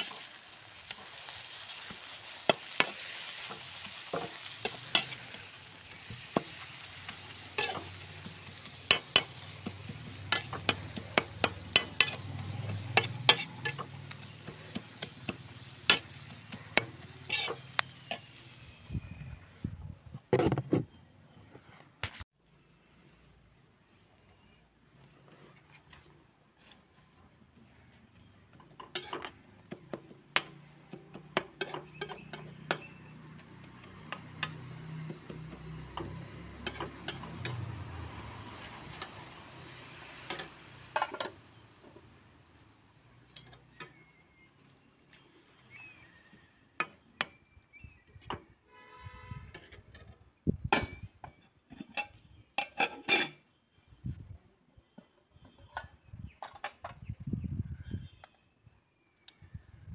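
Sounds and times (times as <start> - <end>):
steel pots and utensils clinking: 0.0 - 18.7, 28.5 - 39.4, 40.2 - 42.1, 43.2 - 44.4, 49.5 - 53.5, 55.1 - 57.0
metal ladle scraping a wok: 0.0 - 18.8, 28.7 - 29.5, 30.4 - 39.4, 51.4 - 53.6.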